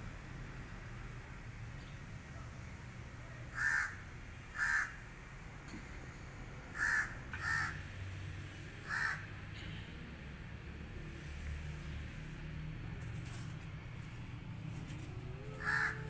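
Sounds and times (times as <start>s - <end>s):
crow cawing: 3.5s - 5.0s, 6.8s - 7.8s, 8.8s - 9.3s, 15.4s - 16.0s.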